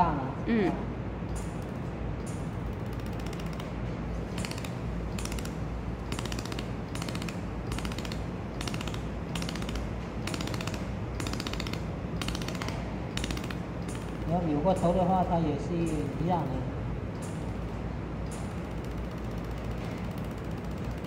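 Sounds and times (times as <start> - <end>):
low machine hum: 0.0 - 21.0
laser welder crackling bursts: 4.3 - 14.4.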